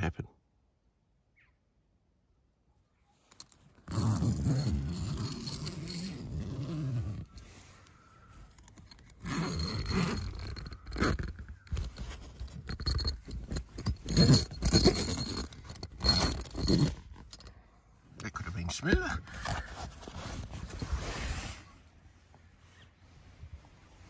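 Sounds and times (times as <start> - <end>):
canvas rustling and scraping: 3.2 - 17.5, 19.0 - 24.0
heavy zipper unzipping: 3.8 - 7.4, 9.2 - 17.4.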